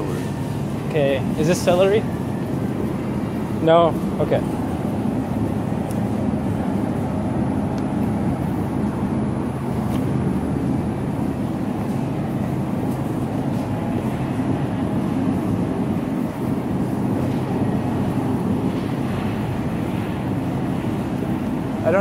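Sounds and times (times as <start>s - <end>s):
shopping cart wheels rumbling: 0.0s - 22.0s.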